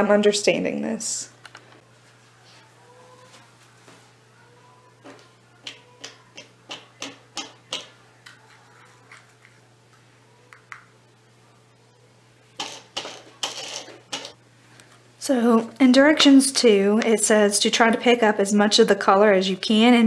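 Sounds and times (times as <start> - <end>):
plastic cups clicking: 12.6 - 14.4.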